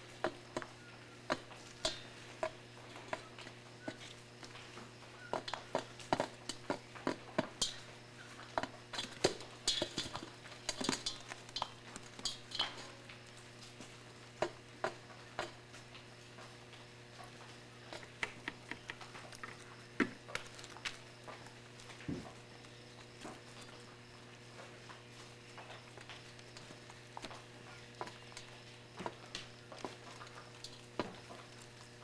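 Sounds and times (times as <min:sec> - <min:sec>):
beaks tapping on metal bowl: 0:00.0 - 0:13.0, 0:14.4 - 0:15.6, 0:17.8 - 0:21.0, 0:25.6 - 0:31.9.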